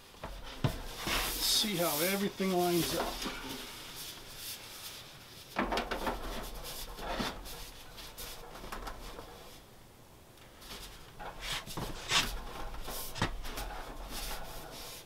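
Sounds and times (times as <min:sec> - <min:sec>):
metal pipe knocks and scrapes: 0:00.2 - 0:01.5.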